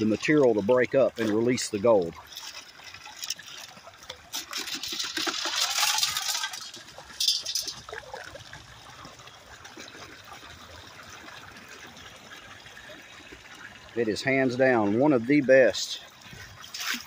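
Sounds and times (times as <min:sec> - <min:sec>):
water and mud sloshing in sluice: 0:00.0 - 0:17.0
water running through rig: 0:00.0 - 0:17.0
sharp clatter: 0:04.3 - 0:08.0.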